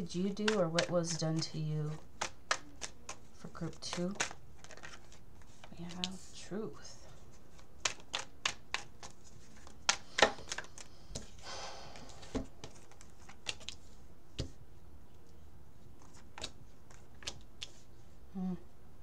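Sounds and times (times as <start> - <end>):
cards rustling: 0.1 - 6.4, 7.1 - 11.4, 12.0 - 14.6, 15.2 - 17.9
cards clicking and snapping: 0.3 - 6.2, 7.5 - 11.4, 12.1 - 14.5, 16.0 - 17.8.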